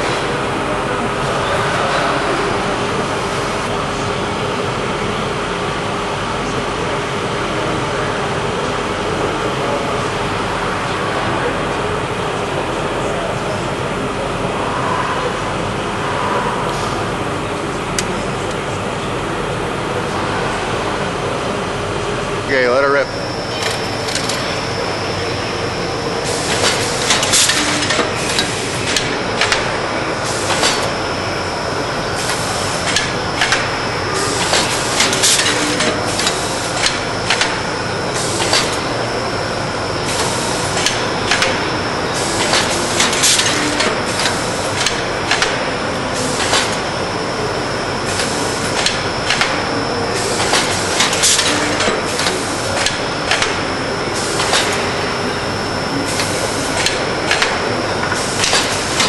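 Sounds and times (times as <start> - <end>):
high machine whine: 0.0 - 59.0
machine clacks: 26.2 - 31.1, 32.2 - 38.9, 40.1 - 46.9, 48.1 - 55.2, 56.1 - 59.0
mechanical clatter: 26.3 - 31.0, 32.2 - 37.6.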